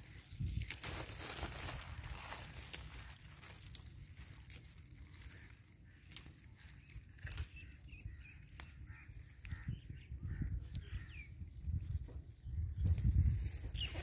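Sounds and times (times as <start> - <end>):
leafy greens snapping: 0.1 - 9.6
faint bird chirps: 5.1 - 11.7, 12.4 - 14.0.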